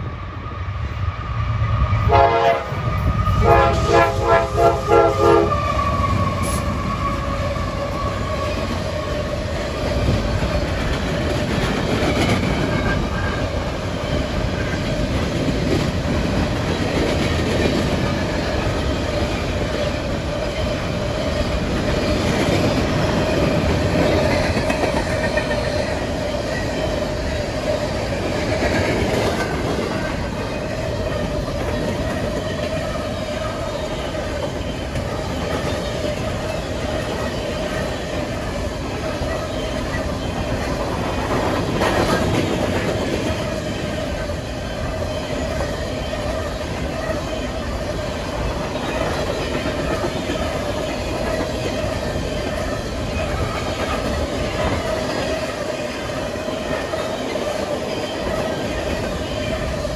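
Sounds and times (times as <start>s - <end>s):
train cars rumbling and clacking: 0.0s - 59.9s
train horn short blasts: 2.1s - 5.6s.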